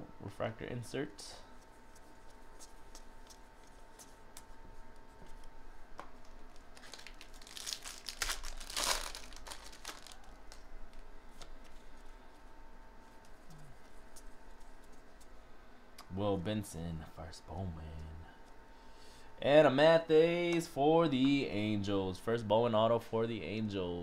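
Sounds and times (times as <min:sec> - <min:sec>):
foil wrapper crinkling: 0:06.3 - 0:11.9.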